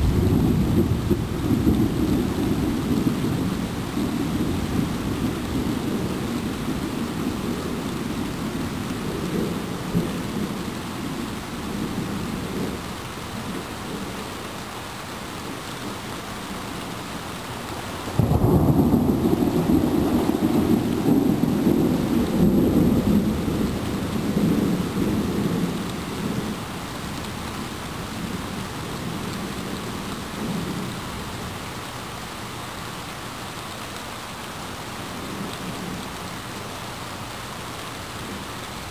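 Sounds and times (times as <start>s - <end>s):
thunder rumbling: 0.0s - 12.8s, 18.1s - 26.7s
steady rain: 0.0s - 38.9s.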